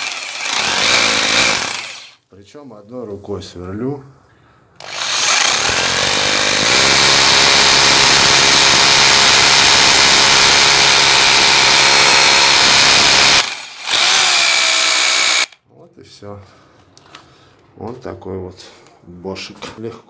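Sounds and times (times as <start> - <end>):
rotary hammer drilling into concrete: 0.0 - 2.2, 4.8 - 15.6.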